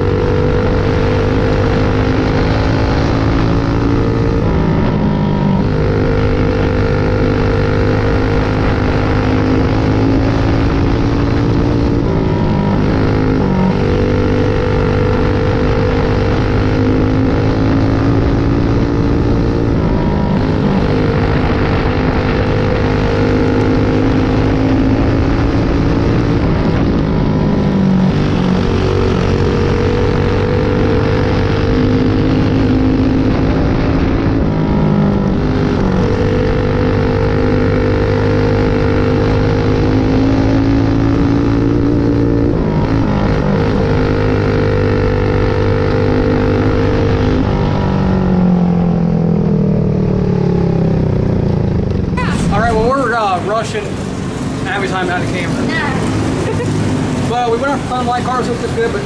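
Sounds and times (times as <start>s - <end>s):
kart engine running hard: 0.0s - 59.0s.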